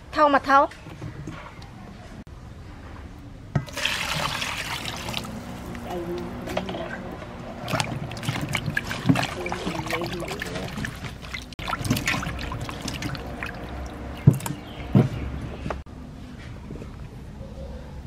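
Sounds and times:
water splashing in metal bowl: 0:03.6 - 0:14.8
sharp thumps: 0:10.8 - 0:15.8.

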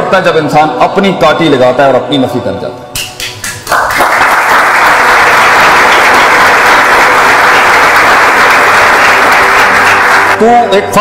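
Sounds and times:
audience applause: 0:03.5 - 0:10.4.

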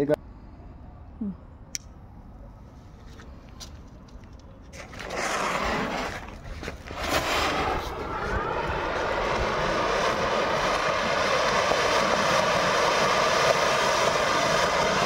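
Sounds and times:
firework fountain hissing sparks: 0:04.8 - 0:15.0.

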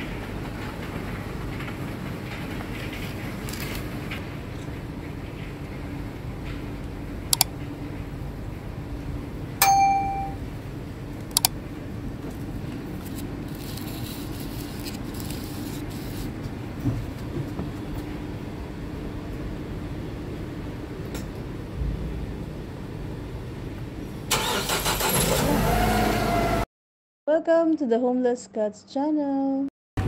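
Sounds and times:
metallic clang: 0:09.6 - 0:10.4.

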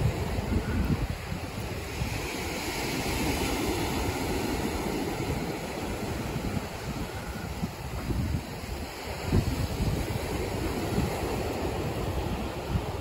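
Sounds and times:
waves breaking on beach: 0:00.0 - 0:13.0
wind buffeting microphone: 0:00.0 - 0:13.0.

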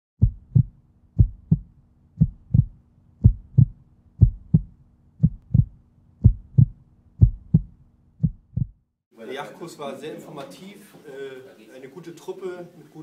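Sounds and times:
heartbeat double thump: 0:00.2 - 0:08.8.

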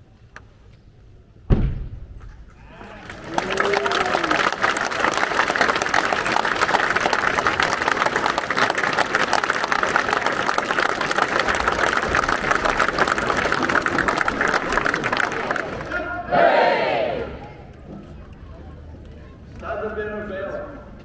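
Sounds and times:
crowd applauding: 0:02.6 - 0:17.6.

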